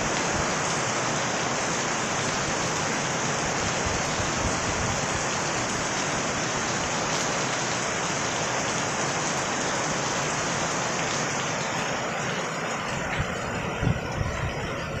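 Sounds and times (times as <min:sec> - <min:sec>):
rain pattering on ground: 0:00.0 - 0:15.0.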